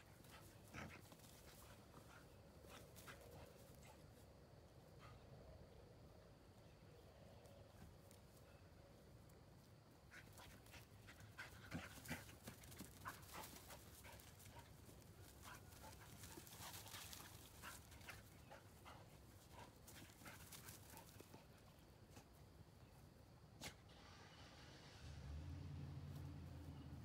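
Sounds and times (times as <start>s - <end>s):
small dog panting: 10.1s - 22.2s.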